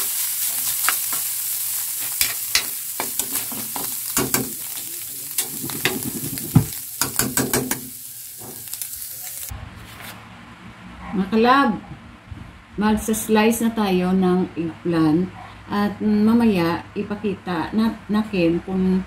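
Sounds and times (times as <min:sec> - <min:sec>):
meat sizzling in a pan: 0:00.0 - 0:09.5
spatula scraping a pan: 0:01.9 - 0:07.8.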